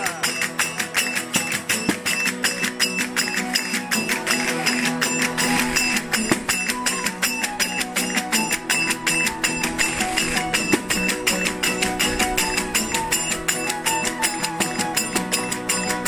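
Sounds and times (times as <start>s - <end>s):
guitars strummed fast: 0.0s - 16.0s
jingle frame drum: 0.0s - 16.0s
small hand cymbals: 0.0s - 16.0s
violin: 0.0s - 16.0s.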